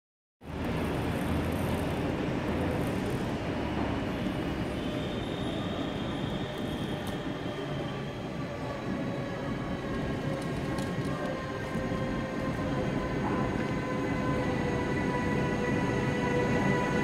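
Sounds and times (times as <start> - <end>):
thin high locomotive whine: 0.4 - 17.0
train rumbling: 0.4 - 17.0.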